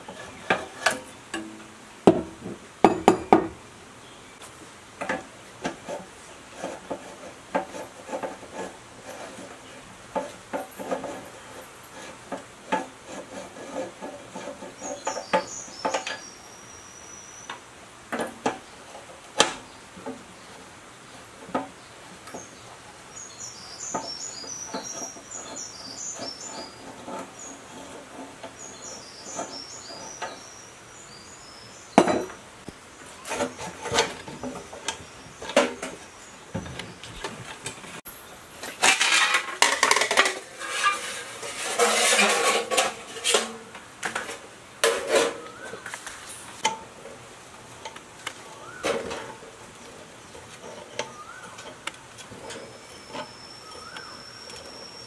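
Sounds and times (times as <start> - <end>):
wrench clinking and scraping metal: 5.1 - 16.3, 38.6 - 45.6, 48.6 - 55.0
metal rattling and rubbing: 23.9 - 30.4, 38.6 - 47.2.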